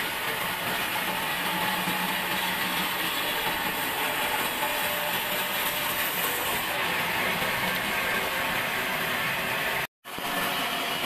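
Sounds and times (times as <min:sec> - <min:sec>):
band saw cutting wood: 0:00.0 - 0:08.8.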